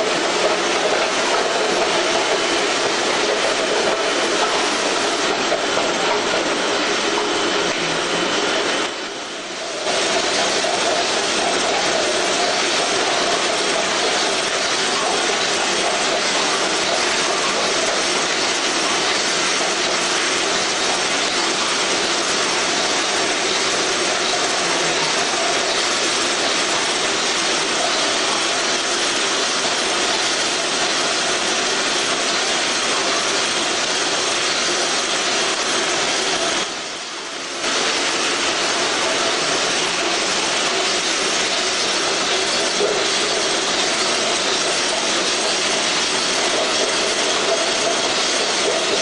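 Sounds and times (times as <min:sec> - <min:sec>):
labelling machine humming: 0:00.0 - 0:49.0.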